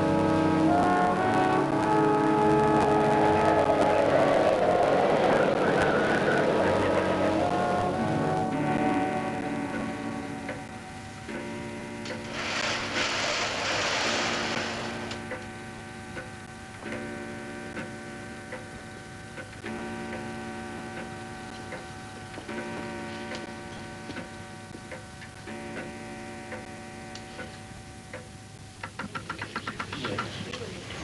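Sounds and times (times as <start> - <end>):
low humming chord: 0.0 - 28.7
longcase clock ticking: 6.7 - 12.3, 15.0 - 30.3
curtains swishing shut: 12.3 - 15.0.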